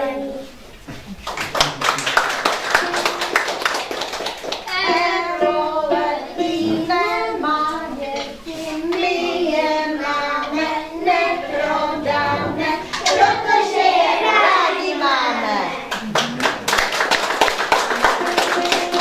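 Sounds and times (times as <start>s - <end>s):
children singing slow song: 0.0s - 0.6s, 4.6s - 15.9s.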